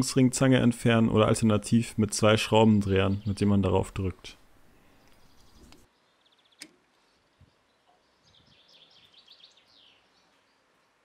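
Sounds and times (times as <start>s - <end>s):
faint click: 5.0s - 5.8s, 6.6s - 6.8s.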